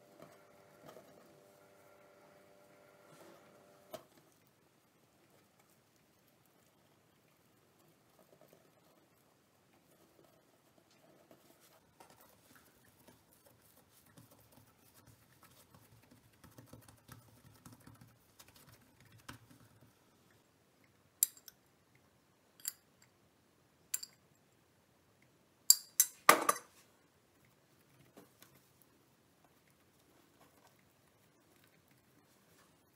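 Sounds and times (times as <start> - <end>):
hands patting dough on countertop: 13.0 - 19.8.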